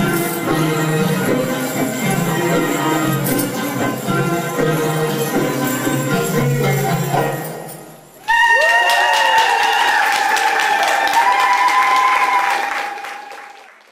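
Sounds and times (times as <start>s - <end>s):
belly dance music: 0.0s - 13.0s
audience clapping: 8.2s - 13.9s
high cheering voices: 8.2s - 13.9s.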